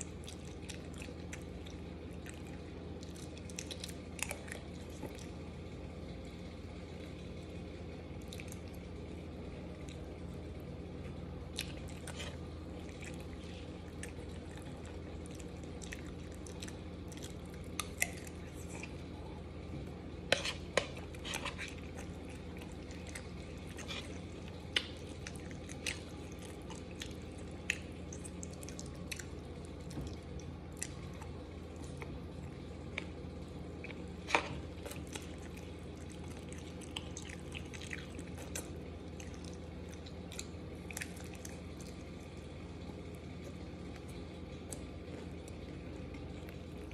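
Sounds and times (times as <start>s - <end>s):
steady low hum: 0.0s - 46.9s
fork scraping in a bowl: 20.3s - 21.8s
slurping and chewing: 20.3s - 32.2s, 33.8s - 42.5s.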